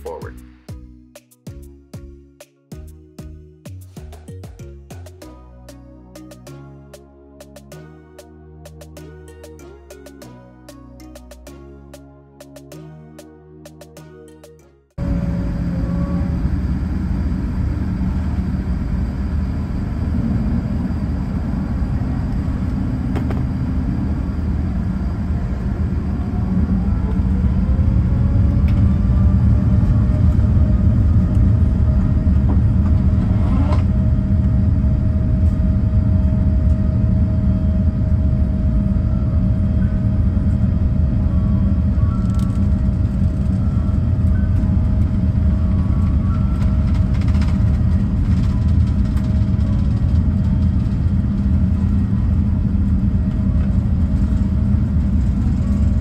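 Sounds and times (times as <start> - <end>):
jet engines spooling up: 15.0 - 56.0.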